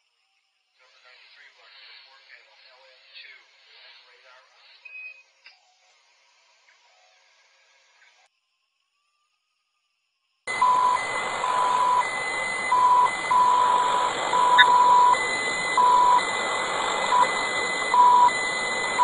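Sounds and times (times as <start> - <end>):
radio static hiss: 0.8 - 4.8, 10.5 - 19.0
electronic beep keyed on and off: 10.5 - 19.0.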